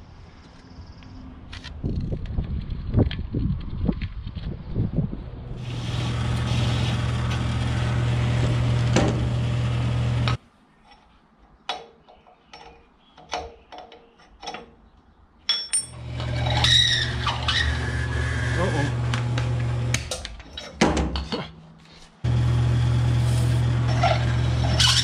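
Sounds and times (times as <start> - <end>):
power tool motor running: 5.6 - 10.4, 15.9 - 20.1, 22.2 - 25.0
tools clicking and knocking: 10.9 - 14.9, 15.5 - 16.0.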